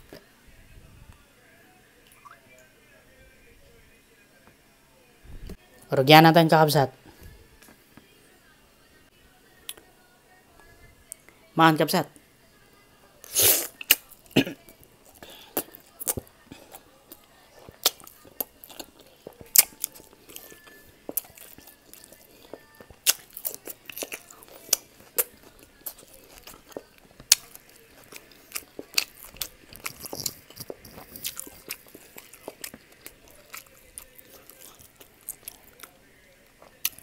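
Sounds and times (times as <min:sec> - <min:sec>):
wet chewing and smacking: 0:13.8 - 0:37.0.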